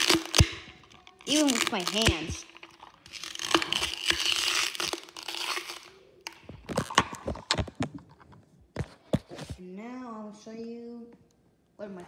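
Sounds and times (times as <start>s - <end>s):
crunchy material crushed by hand: 0.0s - 7.9s.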